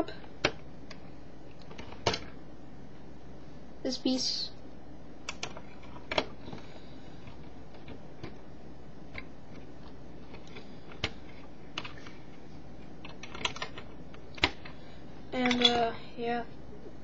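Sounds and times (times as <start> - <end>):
plastic building pieces clicking: 13.0 - 14.7.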